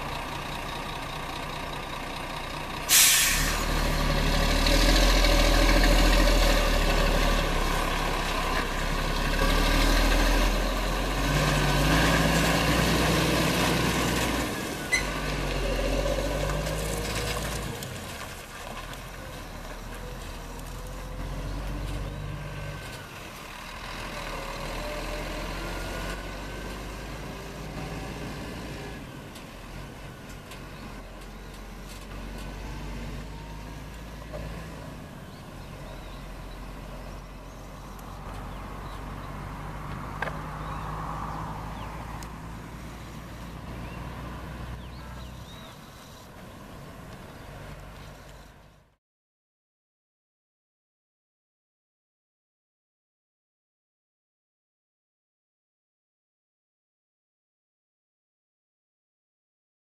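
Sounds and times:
diesel truck engine pulling away: 0:00.0 - 0:49.0
air brake hiss: 0:02.9 - 0:03.7.

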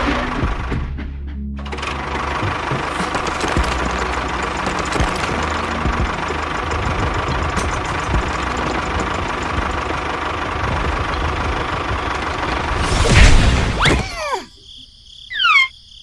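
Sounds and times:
diesel tractor engine running: 0:00.0 - 0:13.8
loud crash: 0:12.7 - 0:14.1
high falling squeaky glides: 0:15.3 - 0:15.8.

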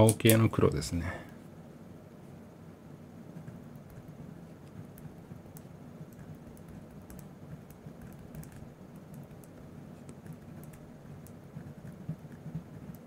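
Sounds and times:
low steady hum: 0:00.0 - 0:13.0
gel pen scratching on paper: 0:03.3 - 0:13.0.

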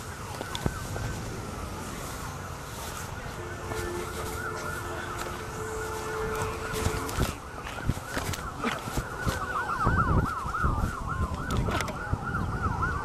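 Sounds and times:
emergency sirens wailing: 0:00.0 - 0:13.0
wind rumble on microphone: 0:00.0 - 0:13.0
steady two-note tone: 0:03.3 - 0:07.5.

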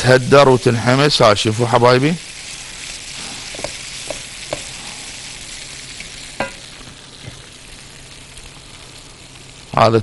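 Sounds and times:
food sizzling in a pan: 0:00.0 - 0:10.0
utensil knocking against pan: 0:03.5 - 0:04.7, 0:06.4 - 0:06.6.

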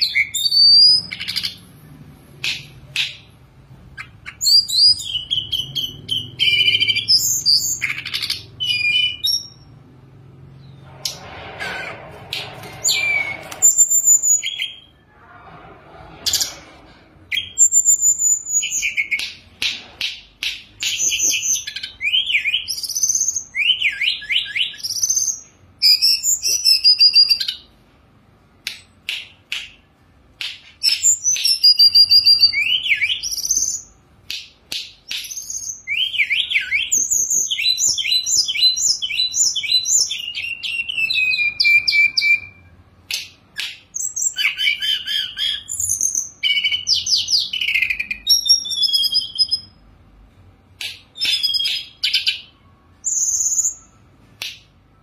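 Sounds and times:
bird singing whistles and trills: 0:04.0 - 0:09.6, 0:20.8 - 0:27.6, 0:30.8 - 0:33.9, 0:35.1 - 0:42.7, 0:43.6 - 0:49.8, 0:51.2 - 0:54.1.

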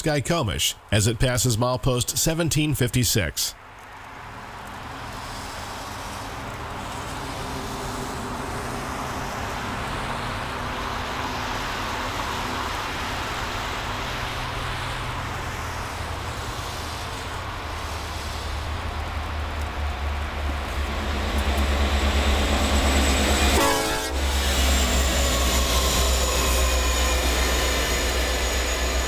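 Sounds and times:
rail noise: 0:00.0 - 0:29.0
diesel locomotive engine rumble: 0:04.0 - 0:29.0.

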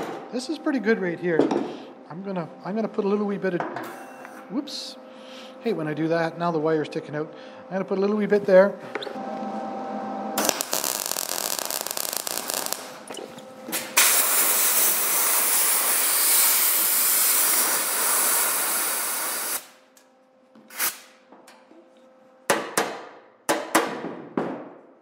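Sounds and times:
air blow gun hissing: 0:10.4 - 0:13.0, 0:13.9 - 0:19.8
welder arc crackling: 0:10.4 - 0:13.2, 0:13.8 - 0:19.8.

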